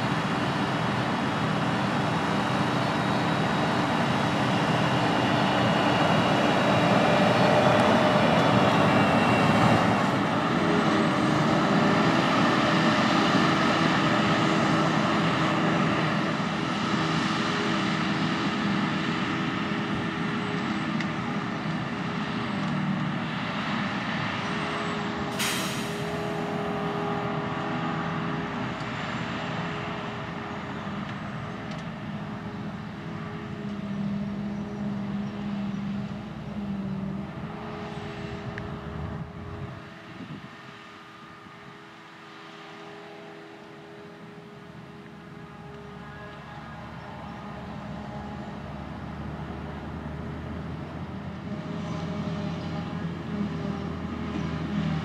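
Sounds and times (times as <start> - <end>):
tractor diesel engines running: 0.0 - 55.0
sharp hiss: 25.4 - 26.2.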